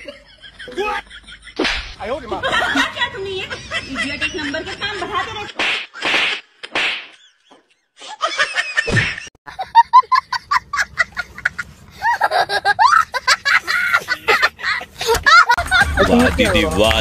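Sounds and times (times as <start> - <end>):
small child laughing: 8.1 - 16.0.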